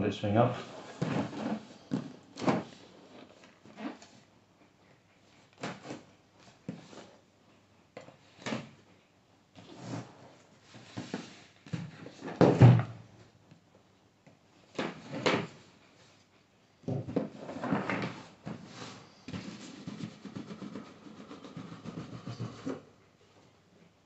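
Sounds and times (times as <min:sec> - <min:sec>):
cardboard scraping and rustling: 0:00.6 - 0:04.2.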